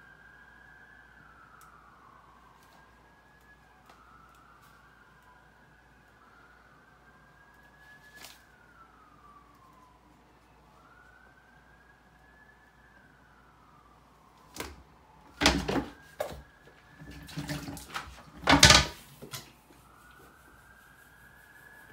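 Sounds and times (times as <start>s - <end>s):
distant siren: 0.0s - 21.9s
toilet seat lid banging: 18.4s - 19.0s.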